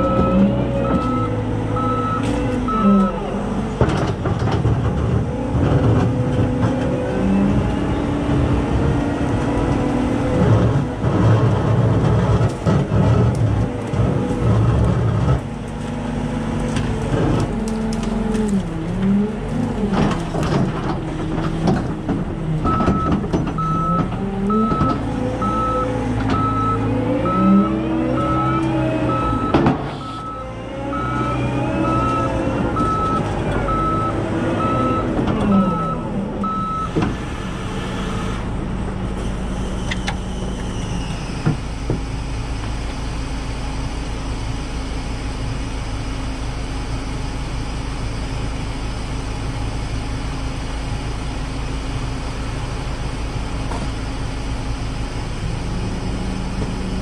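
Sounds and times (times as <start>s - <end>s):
reversing alarm beeps: 0.0s - 3.2s, 22.7s - 36.9s
vehicle engine noise: 0.0s - 57.0s.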